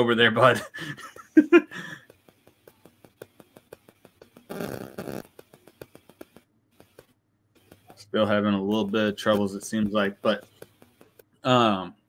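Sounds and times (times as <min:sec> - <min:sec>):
buzzy garbled audio burst: 0:02.9 - 0:07.0.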